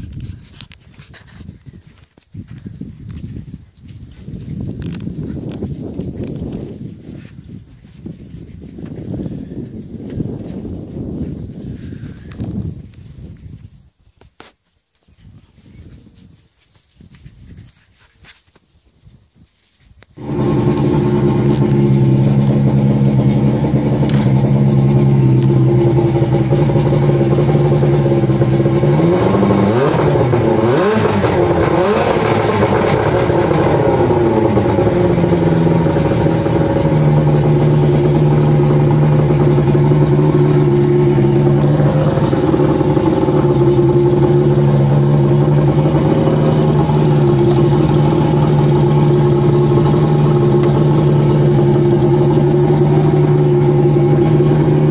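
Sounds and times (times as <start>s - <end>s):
engine running: 20.2s - 54.9s.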